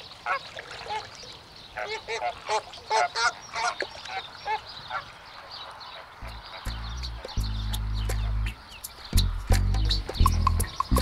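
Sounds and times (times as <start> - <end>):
flamingos honking: 0.2 - 1.1, 1.7 - 8.6.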